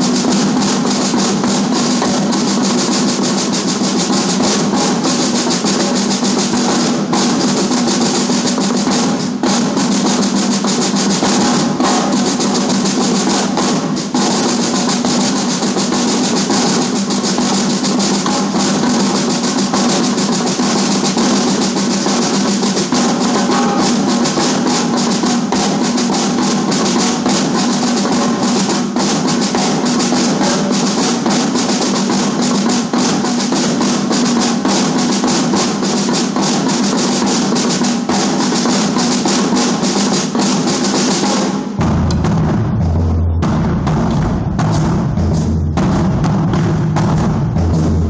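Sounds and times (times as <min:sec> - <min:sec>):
marching snare drums: 0:00.0 - 0:48.0
tenor drums: 0:00.0 - 0:48.0
deep bass drum strokes: 0:41.7 - 0:48.0.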